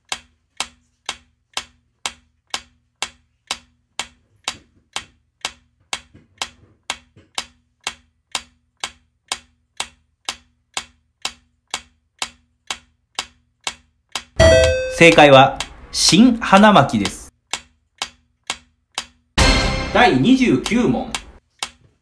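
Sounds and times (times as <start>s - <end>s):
countdown timer ticking: 14.4s - 17.3s, 19.0s - 21.4s.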